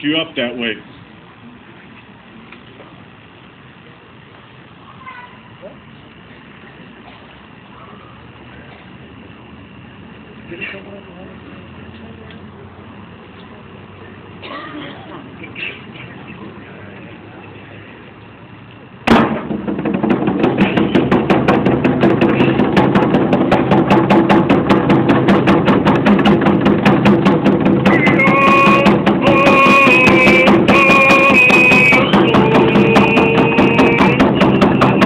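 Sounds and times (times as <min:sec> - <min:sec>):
hand drums beating: 0:19.1 - 0:35.0
group of voices singing: 0:27.8 - 0:35.0
high voice singing: 0:27.8 - 0:35.0.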